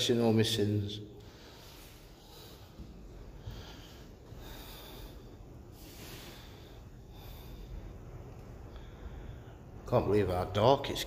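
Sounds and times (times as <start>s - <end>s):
person breathing: 1.1s - 9.8s
low rumble: 2.1s - 11.0s.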